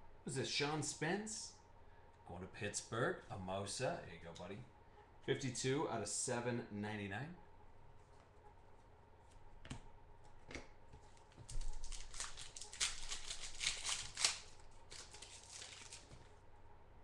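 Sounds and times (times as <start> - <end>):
foil wrapper tearing and crinkling: 11.5 - 16.3.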